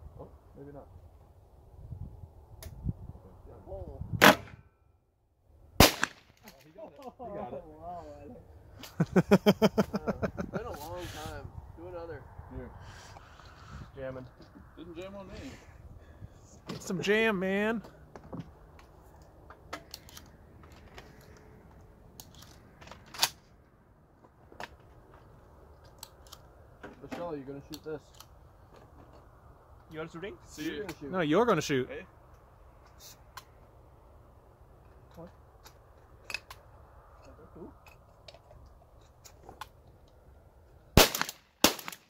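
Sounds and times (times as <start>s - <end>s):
shotgun shots: 4.2s - 4.6s, 5.8s - 6.4s, 41.0s - 42.0s
metallic clicks of guns loaded: 19.2s - 23.4s, 25.8s - 26.5s, 27.7s - 28.4s, 34.8s - 40.2s.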